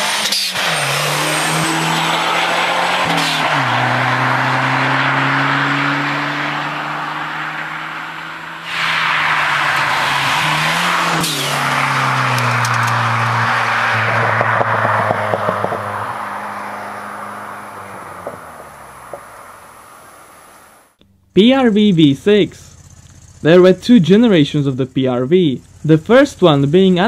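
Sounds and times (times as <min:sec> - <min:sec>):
car engine driving past: 0:00.6 - 0:21.0.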